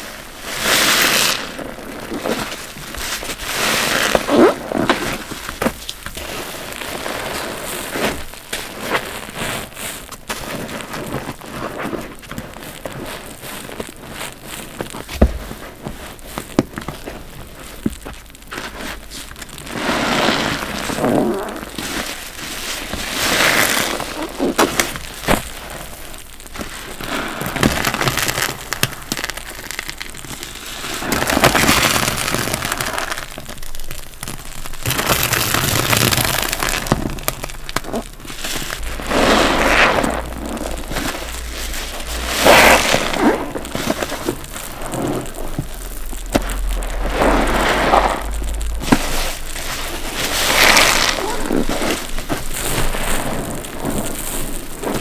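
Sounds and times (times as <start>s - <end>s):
crackling clicks: 0.0s - 55.0s
wet sponge squelching: 0.6s - 55.0s.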